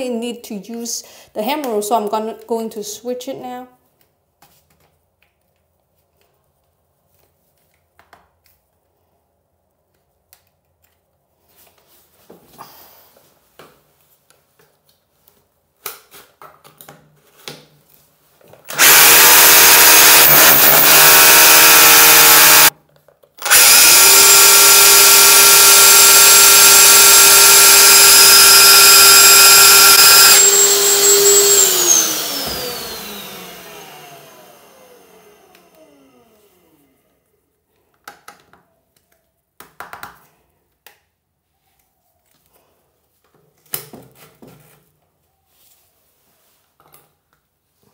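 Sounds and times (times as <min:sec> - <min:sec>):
drill handling clicks: 0:18.6 - 0:22.7, 0:23.4 - 0:33.6
hammer drill boring into tile: 0:18.7 - 0:22.7, 0:23.4 - 0:36.4.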